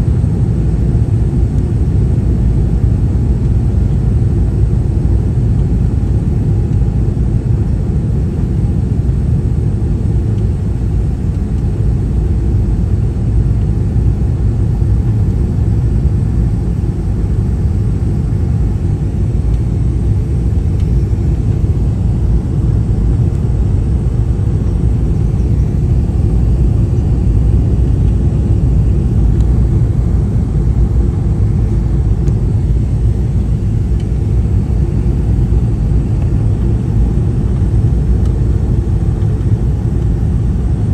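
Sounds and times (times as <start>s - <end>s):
jet engines rumbling: 0.0s - 40.9s.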